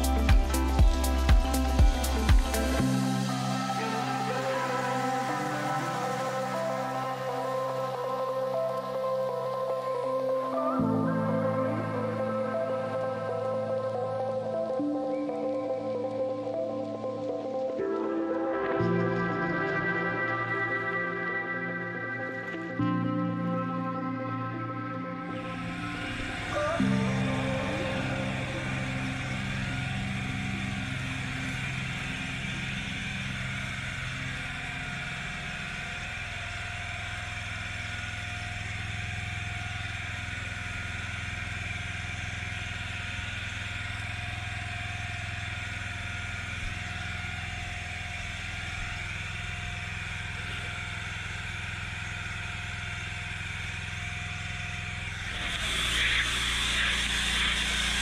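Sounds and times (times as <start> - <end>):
pressure washer motor drone: 0.0 - 58.0.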